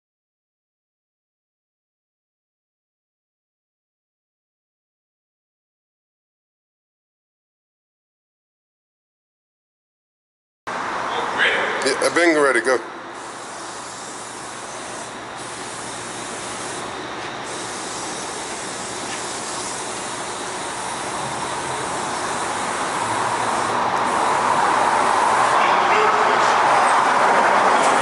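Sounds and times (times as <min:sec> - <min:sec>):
spray paint can hissing: 0:13.2 - 0:25.6.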